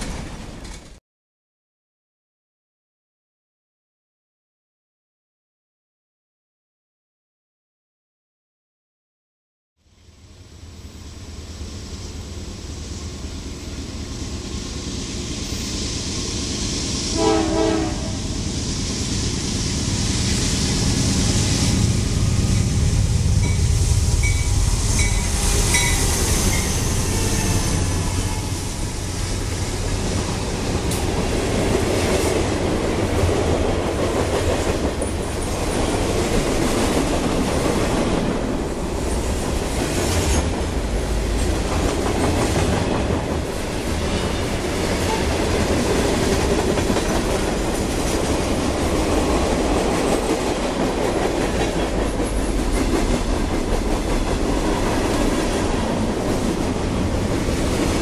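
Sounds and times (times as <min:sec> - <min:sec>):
freight train passing: 0:00.0 - 0:01.0, 0:09.9 - 0:58.0
train horn blast: 0:17.1 - 0:18.3, 0:44.1 - 0:45.4.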